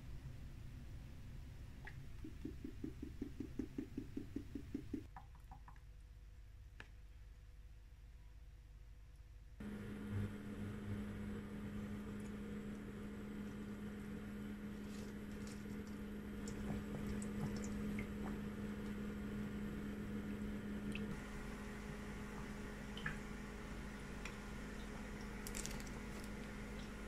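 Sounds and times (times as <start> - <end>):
hob humming: 9.6 - 27.0
frying crackles and pops: 25.2 - 27.0.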